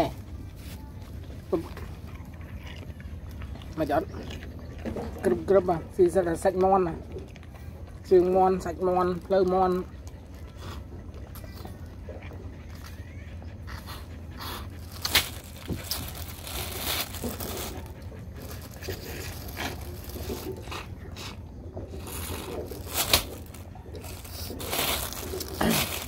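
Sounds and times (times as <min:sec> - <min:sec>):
steady low hum: 0:00.0 - 0:26.0
plastic bags crinkling: 0:14.8 - 0:20.8, 0:21.9 - 0:26.0.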